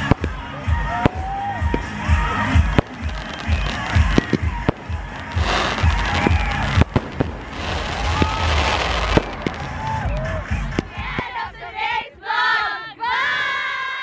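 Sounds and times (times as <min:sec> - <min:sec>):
fireworks crackling hiss: 0:00.0 - 0:10.0
fireworks bangs: 0:00.0 - 0:11.4.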